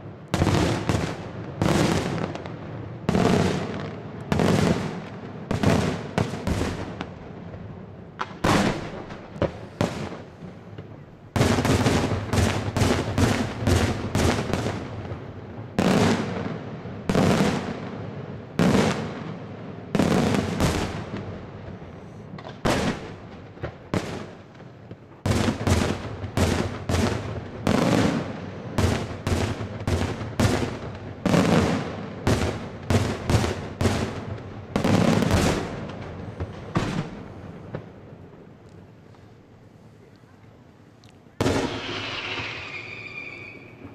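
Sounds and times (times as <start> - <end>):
firework shell bursts: 41.5 - 43.9.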